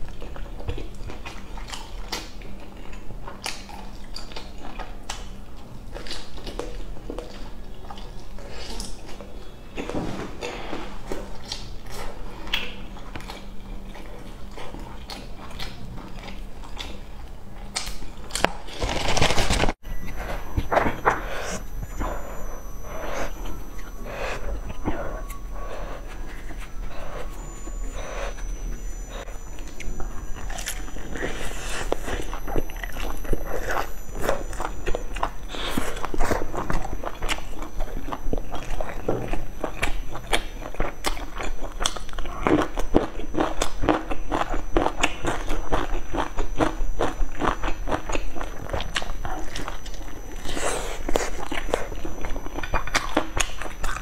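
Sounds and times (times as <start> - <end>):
person chewing noodles: 0.0 - 9.4, 11.0 - 19.0, 19.9 - 54.0.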